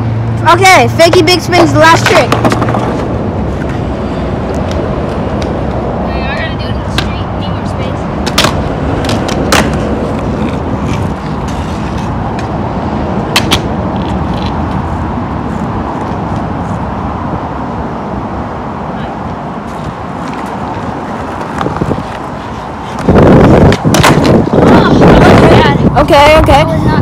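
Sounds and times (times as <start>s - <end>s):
skateboard wheels rolling on asphalt: 1.0s - 27.0s
skateboard clacks: 1.9s - 3.8s, 6.9s - 7.2s, 8.2s - 12.5s, 13.3s - 14.5s, 19.7s - 25.5s.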